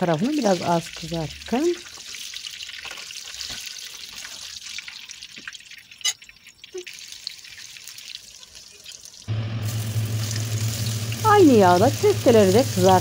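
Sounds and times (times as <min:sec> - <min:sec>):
vegetables frying in hot oil: 0:00.0 - 0:13.0.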